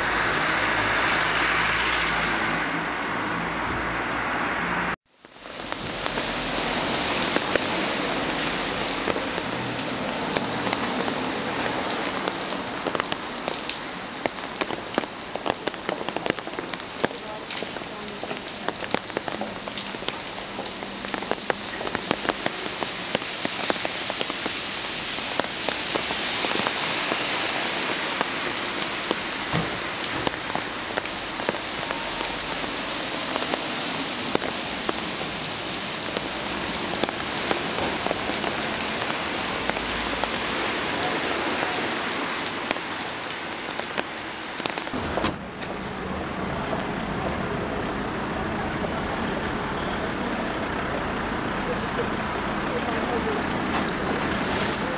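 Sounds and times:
street noise: 0.0 - 54.9
rain drops ticking on car: 7.2 - 27.1, 44.9 - 54.9.

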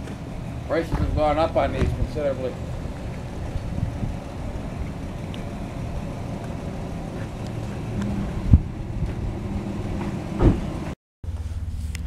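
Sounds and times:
wind rumbling on microphone: 0.0 - 10.9
sharp thump: 10.0 - 10.7.

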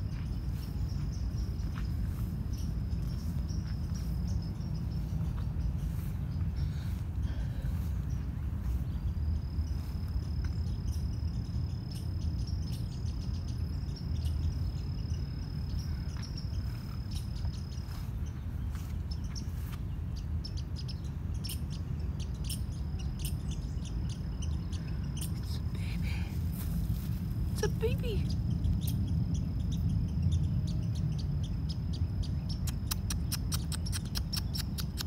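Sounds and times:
low rumble: 0.0 - 27.6
insect trill: 9.0 - 18.1, 20.8 - 35.0
short chirps and clicks: 32.6 - 35.0.

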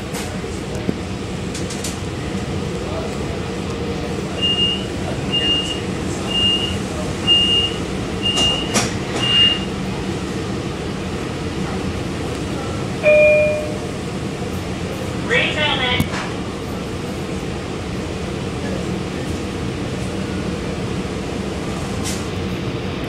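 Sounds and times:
train car rumble and hum: 0.0 - 23.0
short high beeps: 13.0 - 13.9.

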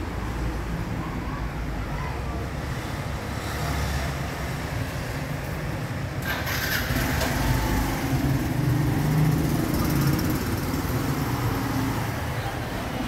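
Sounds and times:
street traffic noise: 0.0 - 13.0.

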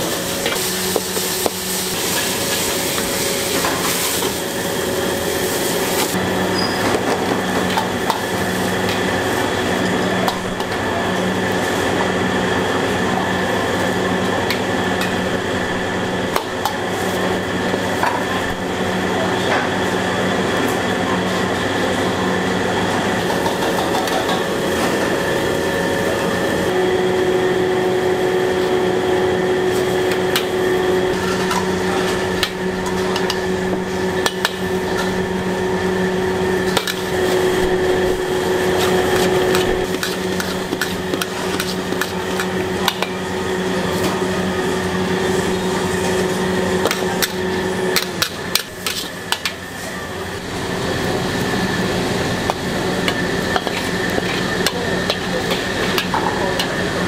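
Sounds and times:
steady hum: 21.9 - 57.0
metal spatula scraping a wok: 38.7 - 43.0, 48.0 - 49.4.

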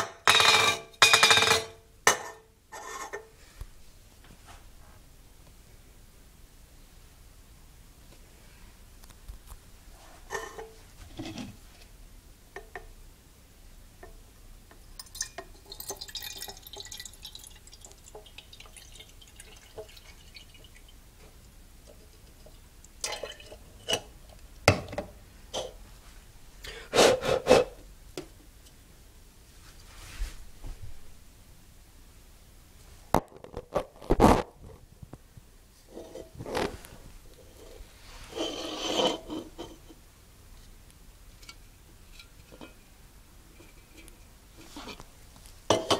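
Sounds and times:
water trickling into a can: 15.0 - 21.0, 21.8 - 23.7.

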